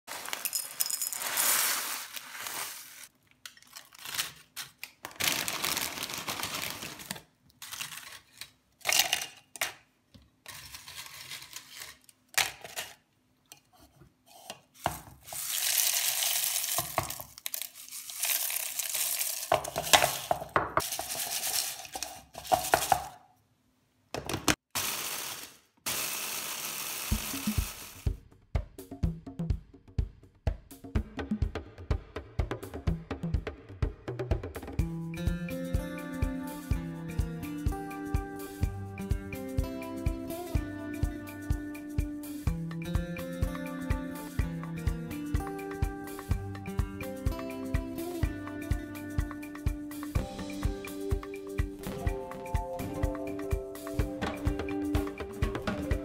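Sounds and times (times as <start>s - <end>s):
flakes pouring into glass dish: 0.1s - 3.1s, 15.2s - 23.0s
plastic bag crinkling: 0.1s - 8.4s, 15.2s - 22.8s
chips crunching in mini chopper: 15.3s - 23.0s, 24.8s - 28.1s.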